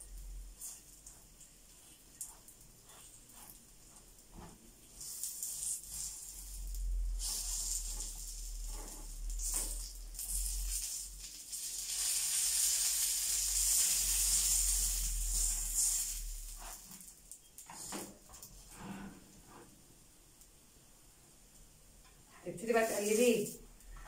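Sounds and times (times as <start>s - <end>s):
oil sizzling in frying pan: 0.0s - 18.5s.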